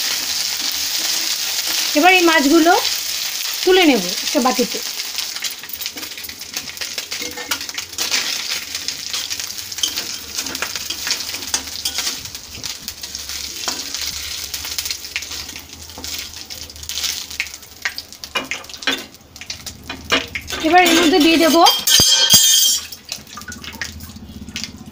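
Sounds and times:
fish sizzling in hot oil: 0.0 - 24.9
metal spatula scraping a pan: 6.8 - 12.2.

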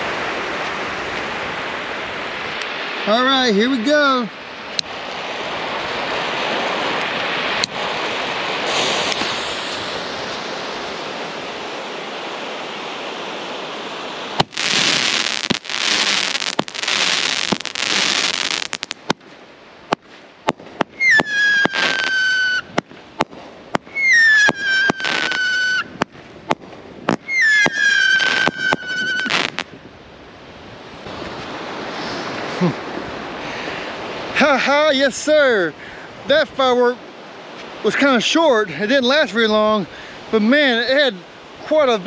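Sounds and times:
hissing rushes of mine shots: 8.6 - 10.4
firework steady hiss: 8.6 - 11.3, 14.3 - 19.2, 19.9 - 29.7
sharp cracking reports: 20.5 - 23.3, 27.1 - 29.6
whistling firework tails: 20.8 - 26.0, 27.1 - 29.7.

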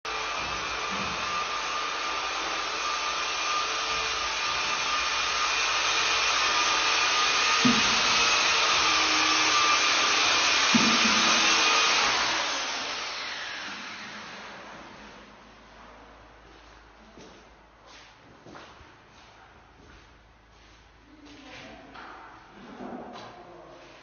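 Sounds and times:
plastering machine hiss and whine: 0.1 - 14.6.

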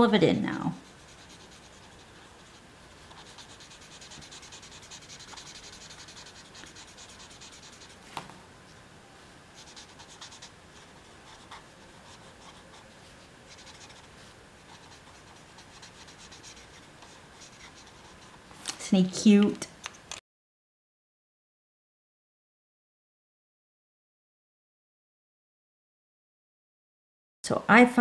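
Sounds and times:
marker scratching on cardstock: 0.8 - 8.1, 9.6 - 18.4.

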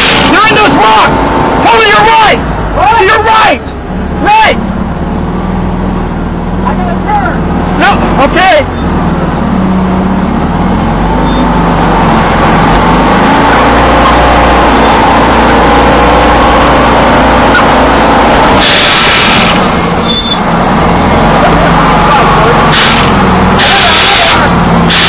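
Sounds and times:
vehicle engine running under load: 0.0 - 25.0
sharp hiss: 22.7 - 25.0.

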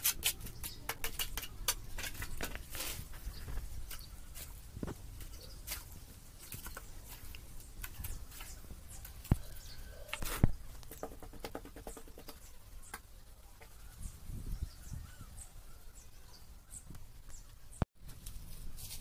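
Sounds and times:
trowel scraping wet mortar: 0.0 - 4.6.

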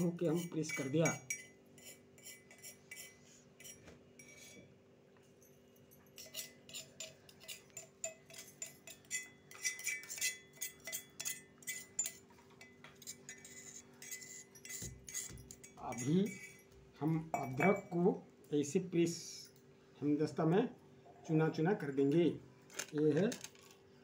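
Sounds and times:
metal spoon scraping a mortar: 0.0 - 4.7, 6.1 - 16.8.

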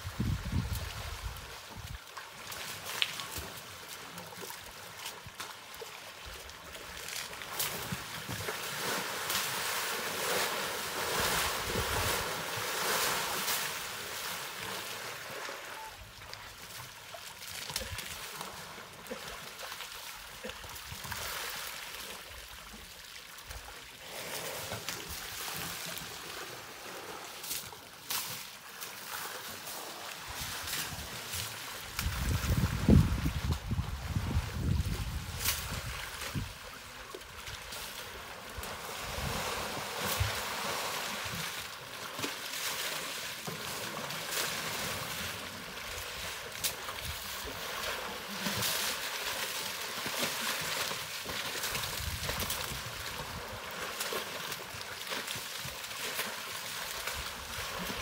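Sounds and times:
mud and water sloshing: 0.1 - 22.9, 23.5 - 58.0.

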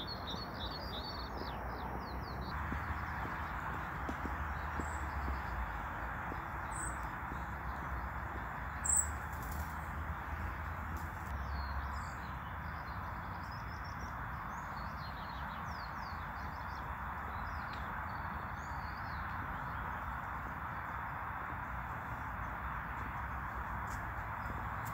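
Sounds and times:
songbirds chirping and singing: 0.0 - 24.9
outdoor background hiss: 2.5 - 24.9.

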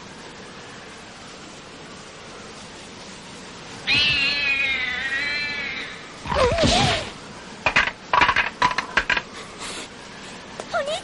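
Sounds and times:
cat yowling: 3.8 - 6.6
cat crying: 3.8 - 7.1
sharp cracks and knocks: 6.2 - 9.3.

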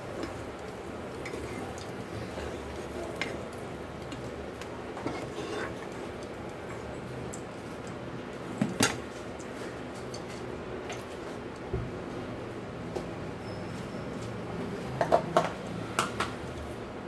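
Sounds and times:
oil frying hiss: 0.0 - 11.6.

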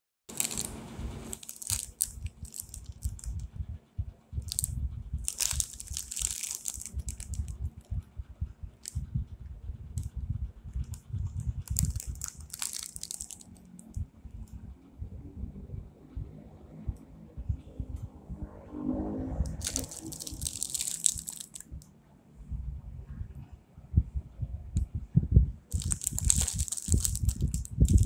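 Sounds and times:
plastic wrapper crinkling: 0.3 - 3.4, 4.5 - 7.5, 11.7 - 13.7, 19.5 - 21.7, 25.7 - 28.0
low rumble: 0.3 - 28.0.

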